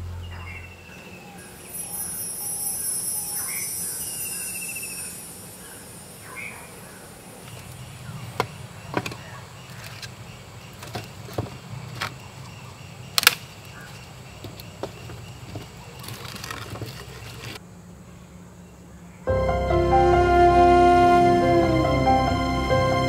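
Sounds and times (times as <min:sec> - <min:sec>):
firewood popping and knocking: 0:14.4 - 0:17.6.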